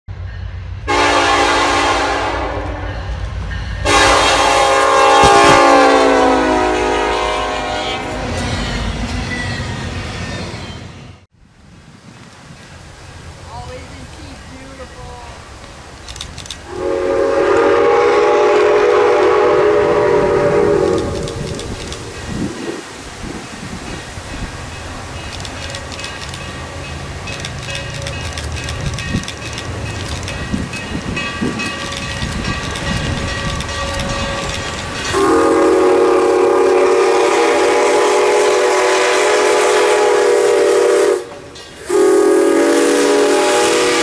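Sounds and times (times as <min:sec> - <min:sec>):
low rumble of train: 0:00.1 - 0:44.0
locomotive air horn blasts: 0:00.9 - 0:03.0, 0:03.8 - 0:08.6, 0:16.7 - 0:21.6, 0:35.1 - 0:44.0.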